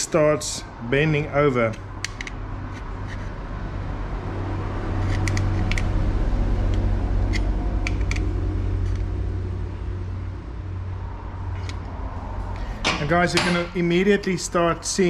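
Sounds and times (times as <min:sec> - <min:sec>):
steady low rumble: 0:03.4 - 0:15.0.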